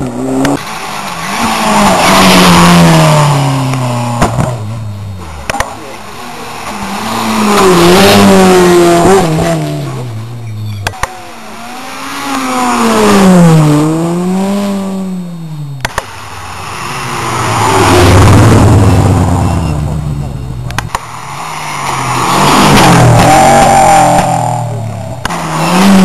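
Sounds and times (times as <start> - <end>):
rally cars passing at speed: 0.0 - 26.0.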